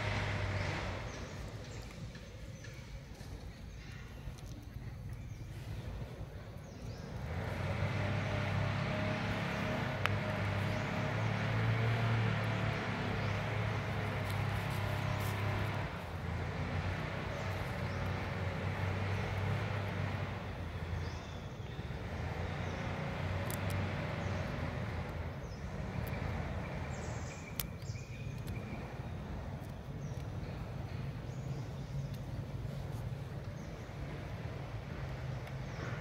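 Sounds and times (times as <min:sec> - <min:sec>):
low outdoor hum: 0:00.0 - 0:36.0.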